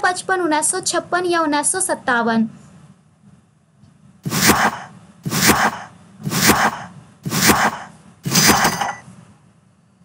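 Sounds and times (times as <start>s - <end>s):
short swishing hits: 4.2s - 9.0s.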